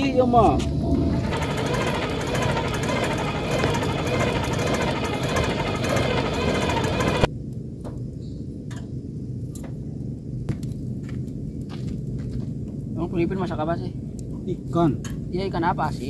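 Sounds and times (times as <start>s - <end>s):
hand-cranked blower whirring: 0.9s - 7.3s.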